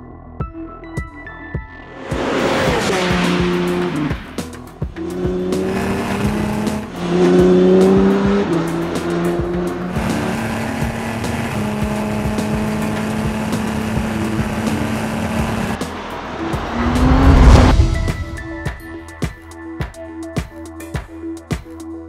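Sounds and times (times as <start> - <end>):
electronic music: 0.0 - 22.0
race car engine: 1.8 - 19.0
race car whooshing past: 1.9 - 10.2, 15.3 - 18.7.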